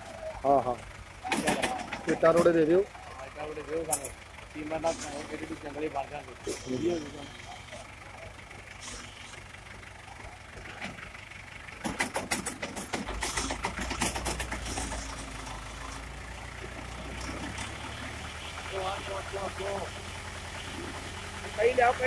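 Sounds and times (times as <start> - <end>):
tractor engine rumble: 0.0 - 22.0
sharp clattering knocks: 11.8 - 15.4.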